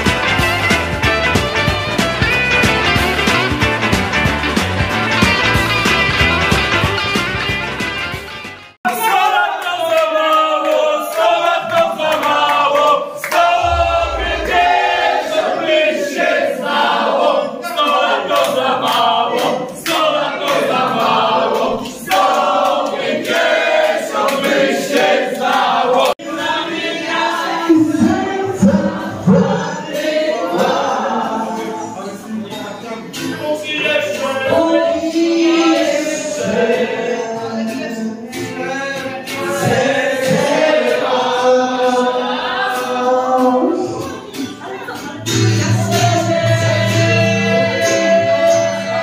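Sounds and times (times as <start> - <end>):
men and women singing in chorus: 10.9 - 32.5, 33.6 - 49.0.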